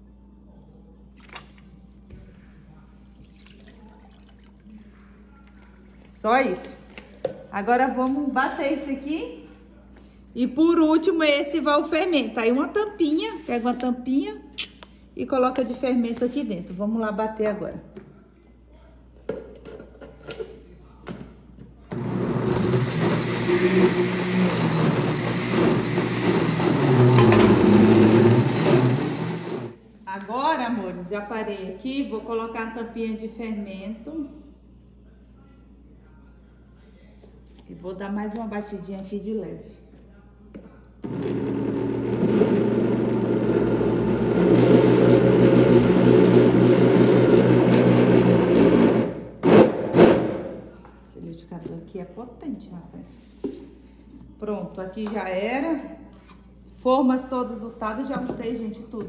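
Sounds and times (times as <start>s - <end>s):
blender running: 21.9s - 29.8s, 41.0s - 50.6s.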